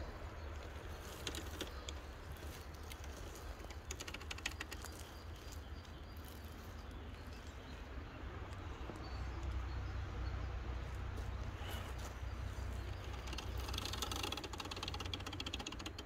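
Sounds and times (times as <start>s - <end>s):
tyres crackling over dry leaves: 0.0s - 9.7s
quick run of clicks: 2.8s - 5.2s, 12.9s - 16.0s.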